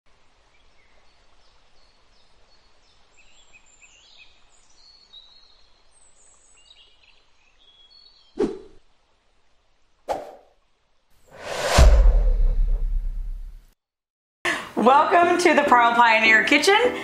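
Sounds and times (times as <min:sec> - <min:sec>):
small birds chirping: 0:00.3 - 0:08.8.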